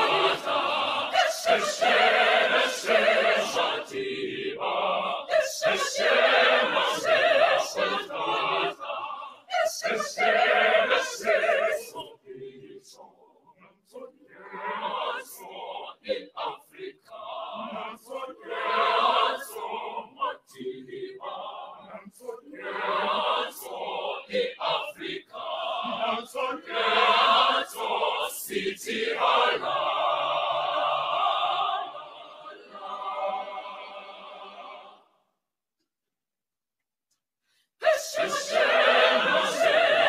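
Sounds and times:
choir singing a cappella: 0.0s - 35.2s, 37.8s - 40.0s.

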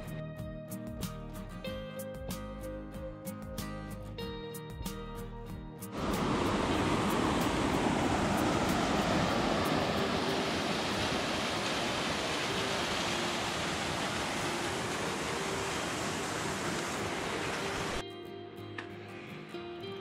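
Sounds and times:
stream rushing over rocks: 5.9s - 18.0s.

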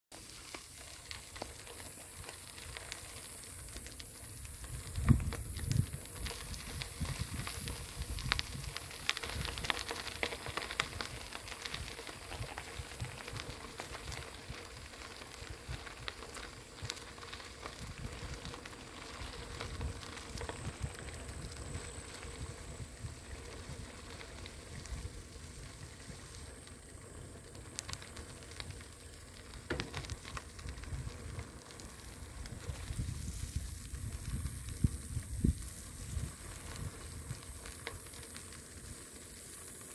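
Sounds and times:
bicycle tyres crunching on gravel: 0.1s - 39.9s
bicycle rattles: 0.2s - 39.9s
bicycle hitting bump: 29.6s - 30.4s.

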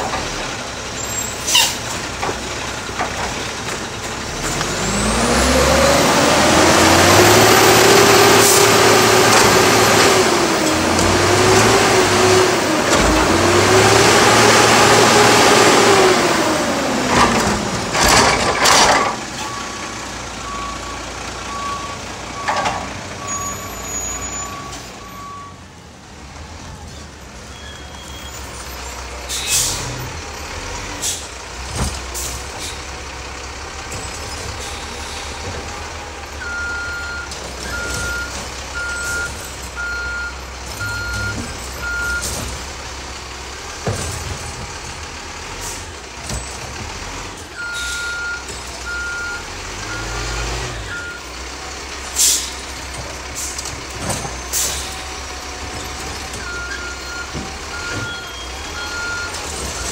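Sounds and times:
diesel truck engine revving: 0.0s - 59.9s
air brake hisses: 1.4s - 1.8s, 29.3s - 30.0s, 52.2s - 52.6s
reversing beeps: 20.4s - 22.6s, 23.2s - 25.6s, 36.4s - 42.4s, 47.6s - 50.2s, 50.8s - 51.3s, 56.4s - 59.9s.

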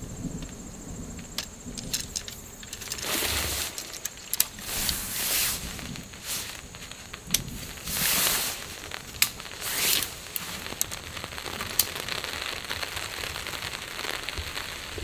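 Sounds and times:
faint steady hiss: 0.0s - 15.0s
sharp clicks: 0.4s - 5.0s
tent fabric swishing and rustling: 2.6s - 10.8s.

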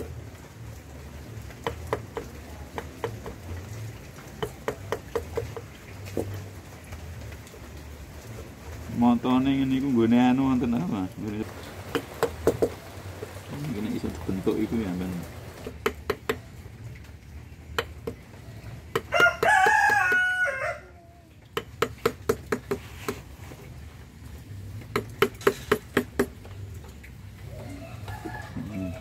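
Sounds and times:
mallet tapping chisel into wood: 1.6s - 3.4s, 4.4s - 6.3s, 11.9s - 12.8s, 15.6s - 16.4s, 17.8s - 18.2s, 18.9s - 20.3s, 21.6s - 23.2s, 24.9s - 26.4s
rooster crowing: 19.0s - 21.3s, 27.5s - 29.0s.

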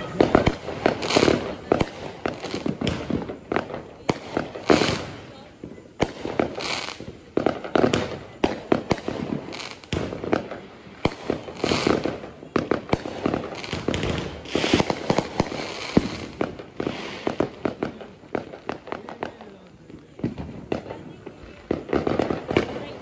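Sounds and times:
crackling hiss: 0.0s - 23.0s
fireworks bangs and pops: 0.0s - 23.0s.

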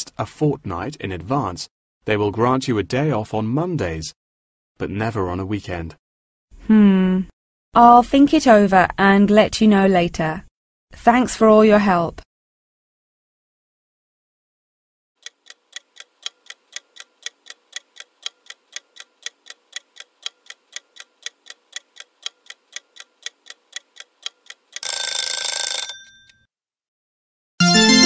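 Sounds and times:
clock ticking: 15.2s - 25.9s.

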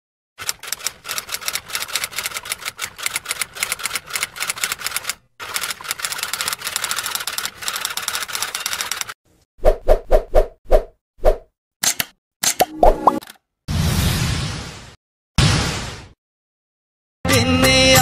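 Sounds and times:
typewriter keystroke clacks: 0.4s - 9.2s, 11.8s - 13.4s.

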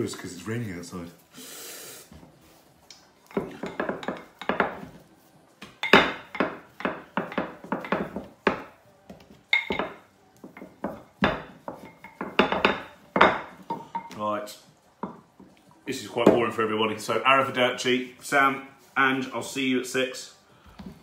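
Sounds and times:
rolling pin rolling over dough: 2.1s - 14.1s.

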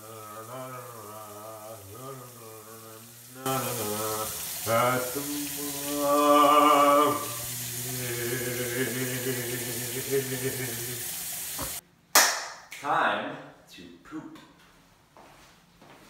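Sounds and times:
man singing with vibrato: 0.0s - 11.8s
room noise hiss: 0.0s - 16.0s.

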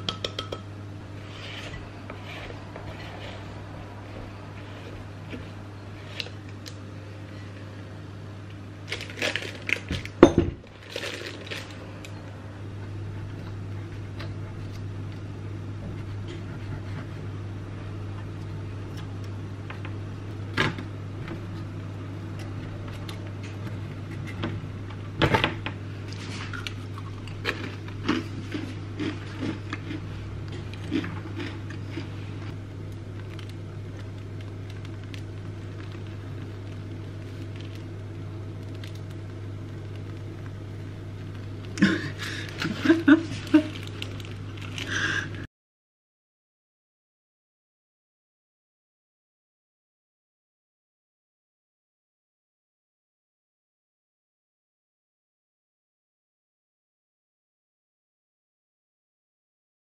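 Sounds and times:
knife tapping metal cake ring: 0.0s - 0.7s
steady low hum: 0.0s - 45.5s.

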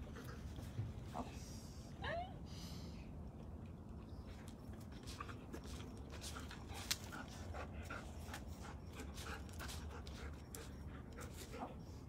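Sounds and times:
dog panting: 4.4s - 12.0s.

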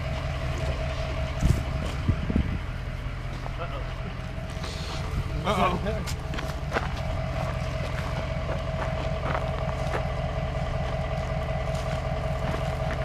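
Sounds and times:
steady whine: 0.0s - 13.0s
truck engine running: 0.0s - 13.0s.

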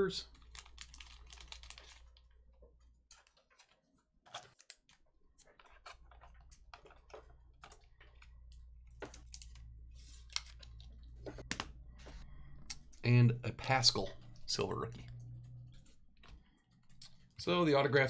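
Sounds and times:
low steady hum: 5.7s - 17.3s.

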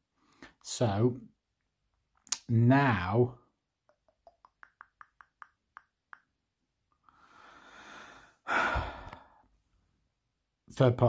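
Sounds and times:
man sighing: 7.3s - 9.4s.

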